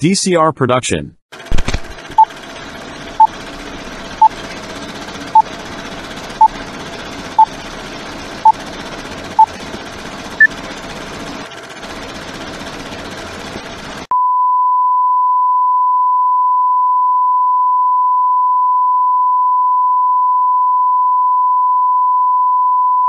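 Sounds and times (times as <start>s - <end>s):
steady test tone beep: 14.1s - 23.0s.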